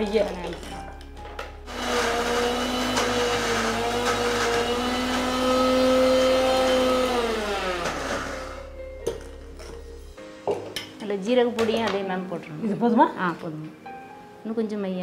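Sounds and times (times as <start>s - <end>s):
mixer grinder whining: 1.7s - 8.7s.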